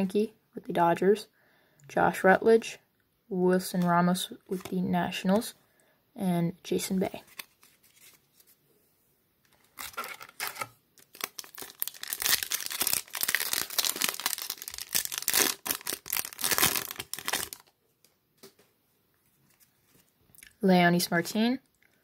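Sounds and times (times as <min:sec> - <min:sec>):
foil wrapper tearing and crinkling: 0:09.7 - 0:17.7.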